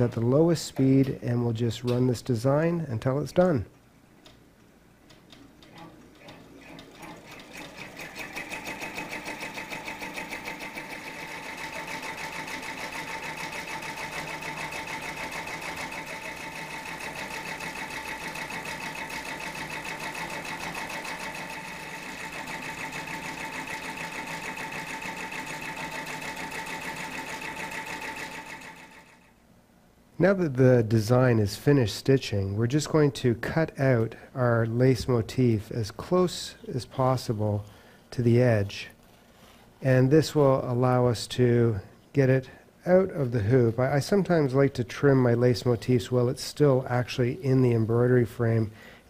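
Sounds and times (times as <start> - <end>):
embroidery machine stitching: 5.6 - 29.3.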